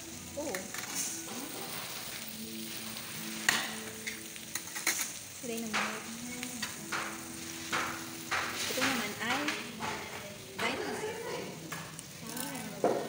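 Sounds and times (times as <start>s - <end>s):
meat sizzling on a grill pan: 0.0s - 13.0s
sharp pops and clicks: 6.6s - 10.0s.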